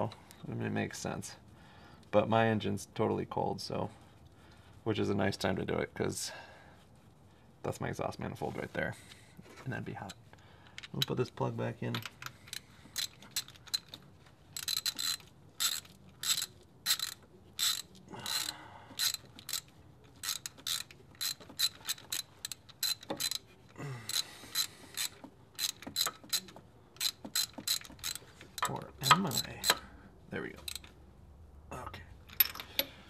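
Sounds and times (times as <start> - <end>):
socket ratchet clicking: 12.0 - 14.0, 14.6 - 29.9, 30.6 - 31.0.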